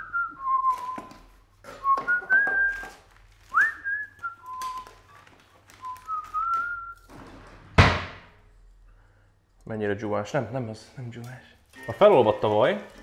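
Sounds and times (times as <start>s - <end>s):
man whistling a tune: 0.0s - 1.2s, 1.8s - 2.9s, 3.5s - 5.0s, 5.8s - 7.0s
drawer opening: 7.1s - 8.2s.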